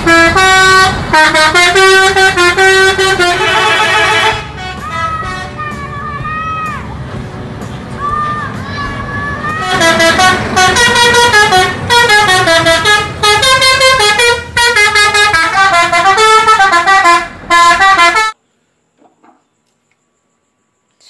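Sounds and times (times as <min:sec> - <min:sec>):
multi-tone musical bus horn: 0:00.0 - 0:06.2, 0:09.6 - 0:18.4.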